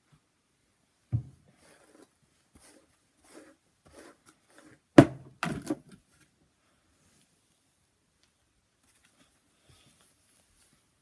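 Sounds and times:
dull thump: 1.1s - 1.4s.

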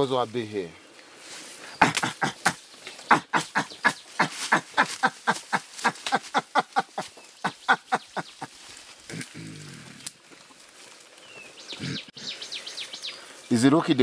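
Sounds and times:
gorillas making sharp sounds: 1.6s - 10.2s, 11.8s - 12.3s.

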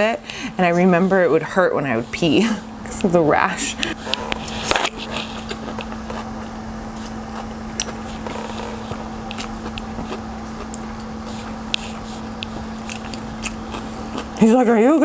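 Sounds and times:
low hum: 0.0s - 15.0s
chewing noodles: 4.0s - 14.4s.

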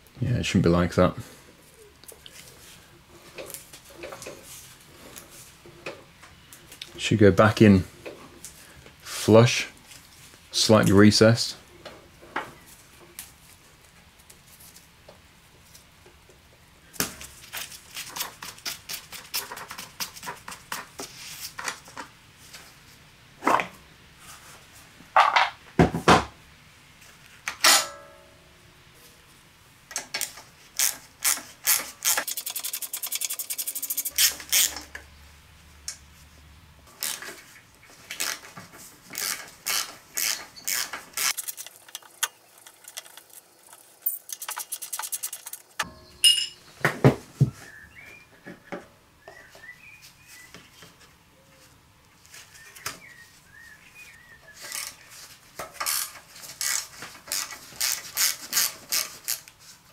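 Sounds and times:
socket ratchet clicking: 30.8s - 34.7s
metal tools clinking: 40.2s - 46.6s.

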